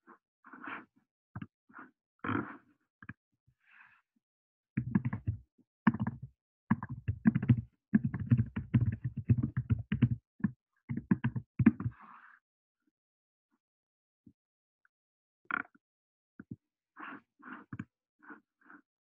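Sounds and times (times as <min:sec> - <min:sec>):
rapid taps and knocks: 0:04.8 - 0:10.2, 0:10.9 - 0:11.9.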